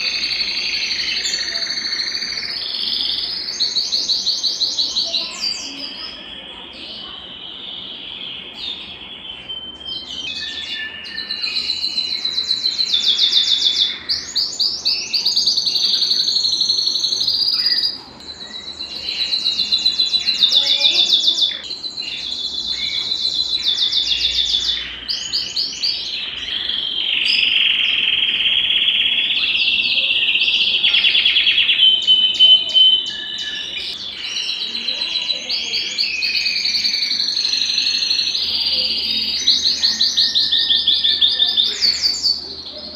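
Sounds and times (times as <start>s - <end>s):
canary singing trills: 0.0s - 42.9s.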